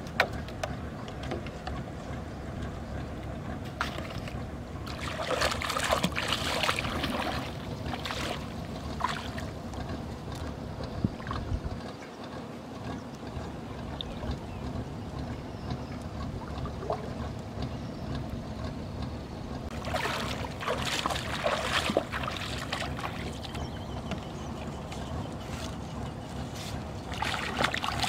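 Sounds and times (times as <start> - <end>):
river water splashing: 3.2 - 19.0, 19.7 - 28.0
wind rumble on microphone: 6.6 - 12.1.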